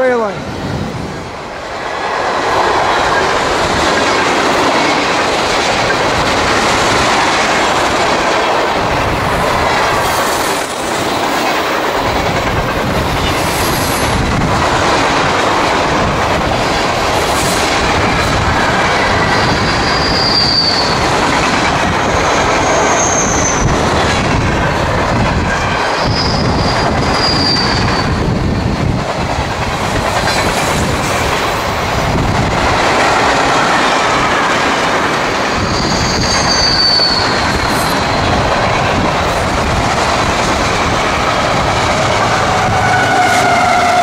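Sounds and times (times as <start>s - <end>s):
train wheels clattering on rails: 1.2s - 44.0s
high wheel squeals: 19.2s - 21.1s, 22.6s - 23.7s, 25.9s - 28.7s, 35.6s - 38.4s.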